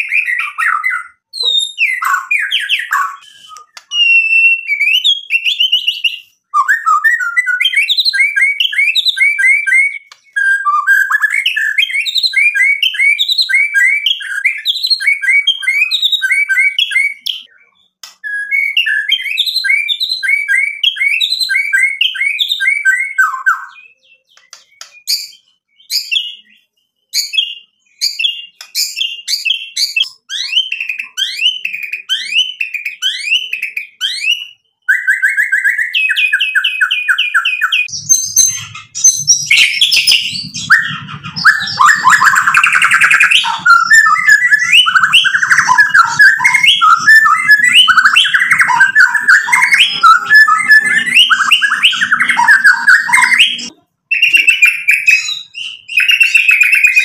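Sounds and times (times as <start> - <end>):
bird singing whistled notes: 0.0 - 57.0
sharp clipped bird notes: 23.2 - 57.0.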